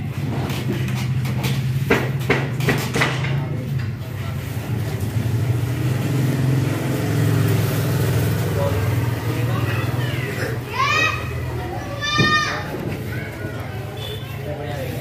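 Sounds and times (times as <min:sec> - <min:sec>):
sharp knocks: 0:01.2 - 0:03.4.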